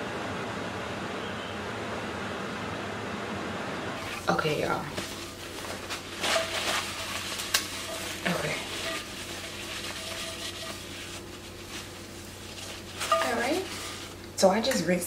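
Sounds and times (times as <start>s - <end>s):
towel scraping frying pan: 4.0s - 14.2s.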